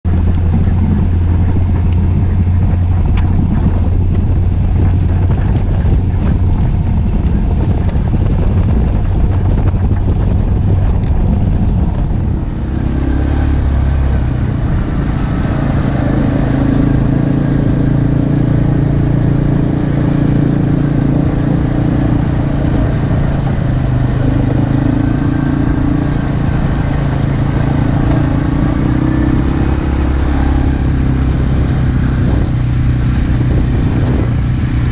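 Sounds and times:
atv engine running: 0.0s - 34.9s
wind rushing: 0.0s - 34.9s.

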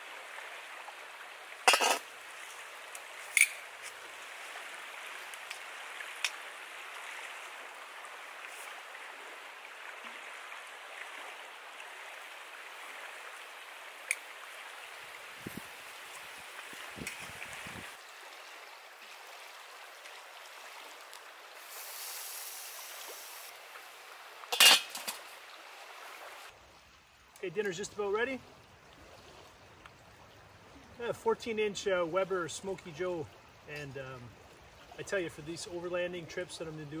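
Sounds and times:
stream rushing: 0.0s - 27.3s
metal clinks of grill lid: 24.5s - 25.1s.

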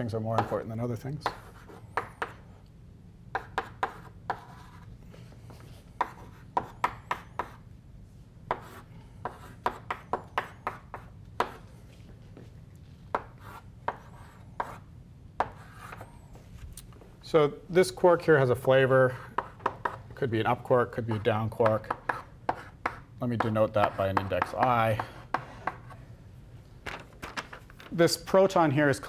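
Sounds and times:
faint room hum: 0.0s - 29.0s
chalk tapping on blackboard: 1.2s - 2.4s, 3.3s - 4.8s, 6.0s - 7.6s, 8.5s - 11.7s, 13.1s - 14.8s, 15.4s - 16.0s, 19.2s - 20.0s, 21.0s - 26.0s.

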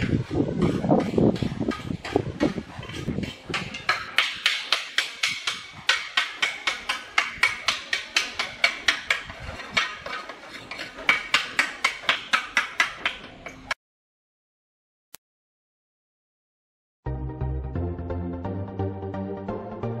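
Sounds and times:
hammer striking stone: 3.2s - 13.7s.

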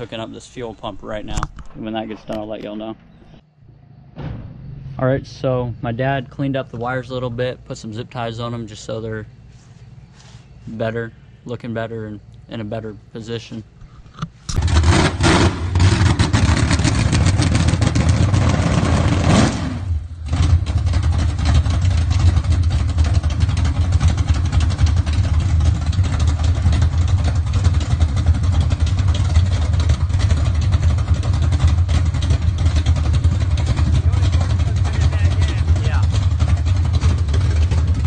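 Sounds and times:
car engine loping idle: 20.0s - 38.0s.

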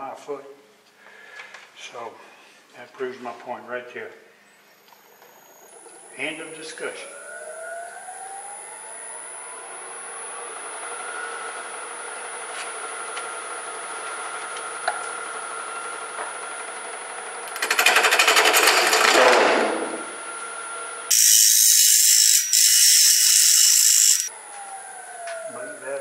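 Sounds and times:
wood lathe running: 17.5s - 19.4s, 21.1s - 24.3s
turning tool cutting wood: 21.1s - 24.3s.

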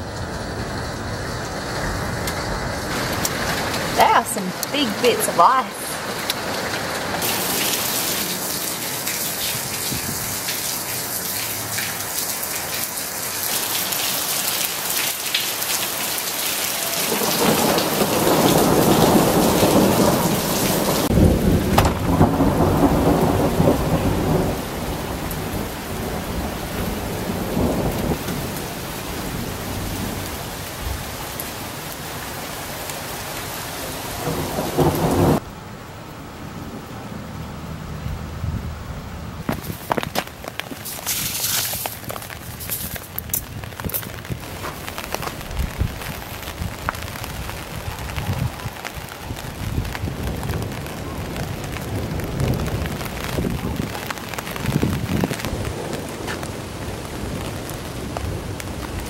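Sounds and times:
hail falling on paving: 2.9s - 33.6s, 39.4s - 59.0s
low rolling rumble: 17.7s - 28.5s.

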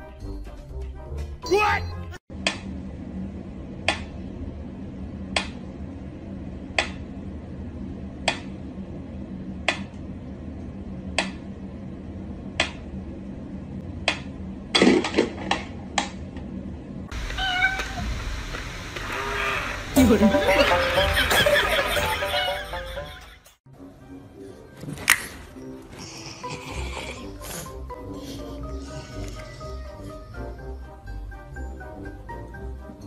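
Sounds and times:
cat meowing: 17.2s - 18.1s.

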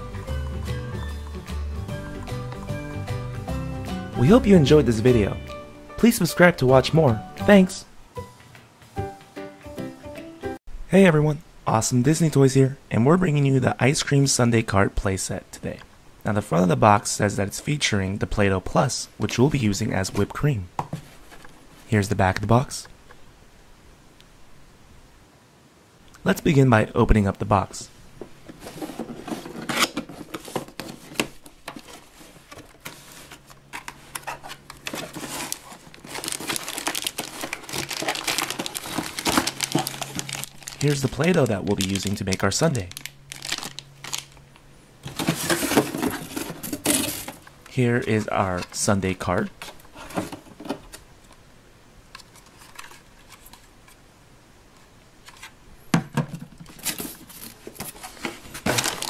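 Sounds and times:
cardboard box rustling: 28.4s - 42.1s, 45.0s - 47.5s, 56.7s - 59.0s
plastic bag crinkling: 28.7s - 47.5s, 56.8s - 59.0s.

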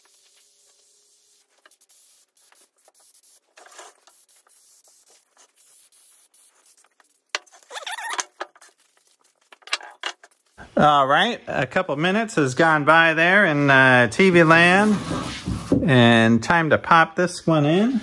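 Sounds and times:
aerosol spray can hissing: 0.0s - 7.8s.

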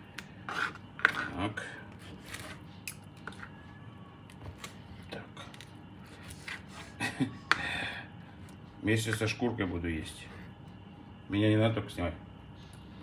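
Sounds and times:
knife and fork scraping cutting board: 0.5s - 1.4s.

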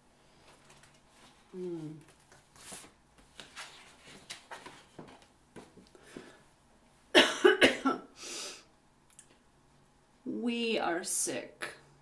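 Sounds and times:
paper card rustling: 2.0s - 5.7s
loud cough: 7.2s - 8.1s.

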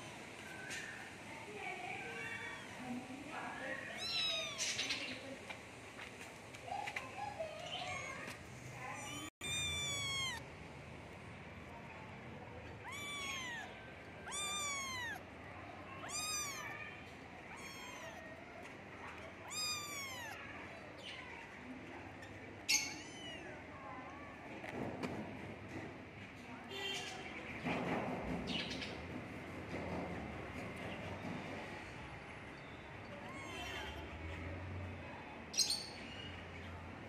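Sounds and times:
cat meowing: 2.1s - 2.8s, 3.9s - 5.0s, 7.7s - 10.5s, 12.5s - 15.3s, 15.9s - 18.4s, 19.2s - 20.5s, 22.7s - 23.6s, 33.1s - 34.0s.

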